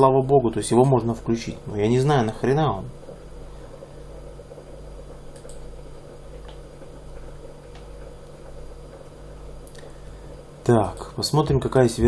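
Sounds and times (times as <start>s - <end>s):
low hum and hiss: 0.0s - 12.0s
computer mouse clicks: 5.4s - 5.6s.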